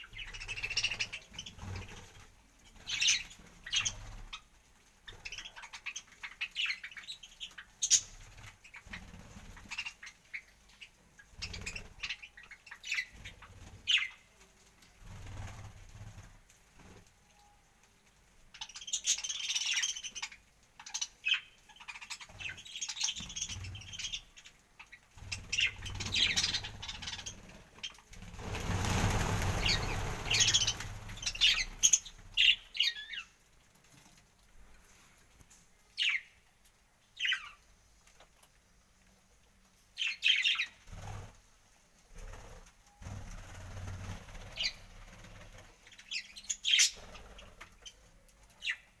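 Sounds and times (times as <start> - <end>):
wings flapping: 0.2 - 4.5, 11.3 - 12.2, 12.9 - 17.1, 25.1 - 32.6, 40.8 - 41.4, 42.1 - 47.9
budgerigars chirping: 18.6 - 27.4, 28.4 - 33.3, 46.0 - 47.5.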